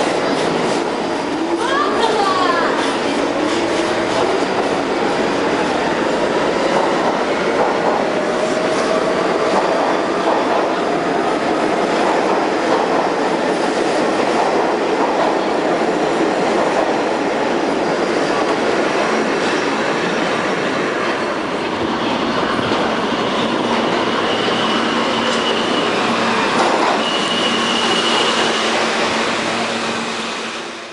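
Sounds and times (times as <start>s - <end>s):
subway train wheels rushing: 0.0s - 30.9s
high wheel squeal: 23.1s - 30.5s
rail-joint clatter: 26.5s - 27.2s.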